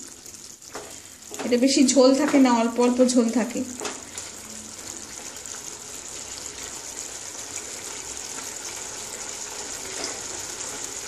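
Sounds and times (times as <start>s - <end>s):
wooden spatula stirring: 0.0s - 2.7s
curry bubbling and sizzling: 0.0s - 11.0s.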